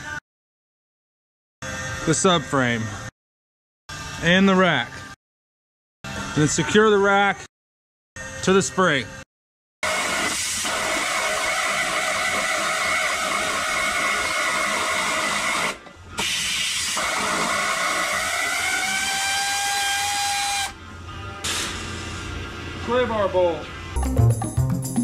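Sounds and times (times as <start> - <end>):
air ratchet whining: 9.9 - 20.8.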